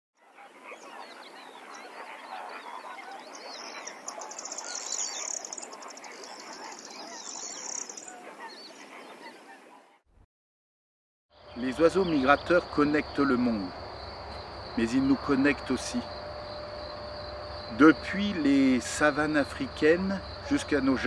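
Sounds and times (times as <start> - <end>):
chorus of birds calling: 0.2 - 9.9, 11.4 - 21.0
high rapid bird trill: 0.4 - 8.9.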